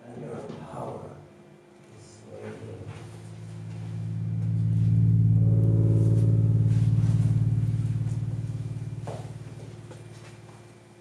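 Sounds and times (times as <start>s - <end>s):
low electronic buzzing drone: 2.6s - 11.0s
higher electronic tone: 3.1s - 10.8s.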